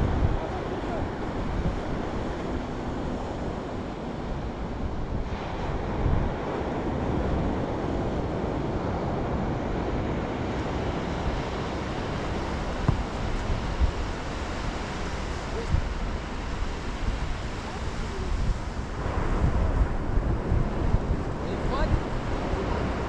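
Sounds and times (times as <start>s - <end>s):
surf washing onto beach: 0.0s - 23.0s
wind rumbling on microphone: 0.0s - 23.0s.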